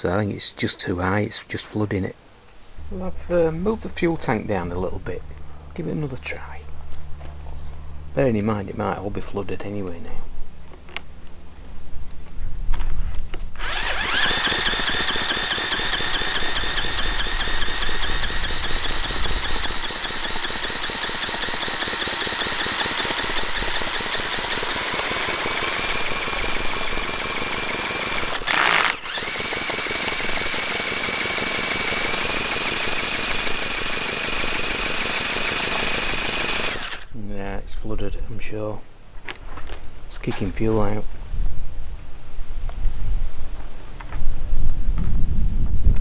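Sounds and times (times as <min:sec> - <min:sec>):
cordless drill whining: 0:13.6 - 0:37.1.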